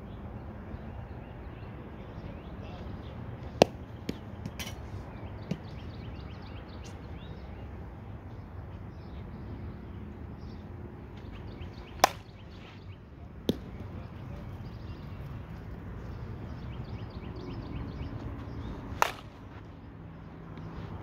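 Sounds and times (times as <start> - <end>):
birds chirping: 0.0 - 21.0
bat striking ball: 3.6 - 4.8, 11.8 - 12.6, 13.4 - 13.8, 18.9 - 19.5.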